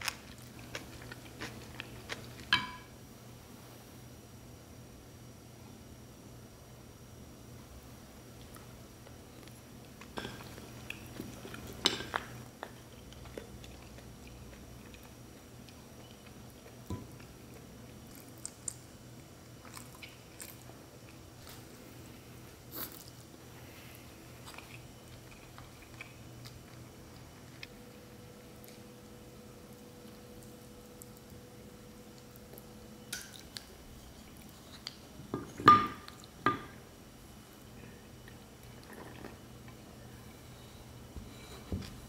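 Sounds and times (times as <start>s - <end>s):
chewing: 0.0s - 2.5s, 9.4s - 21.7s, 22.6s - 27.8s.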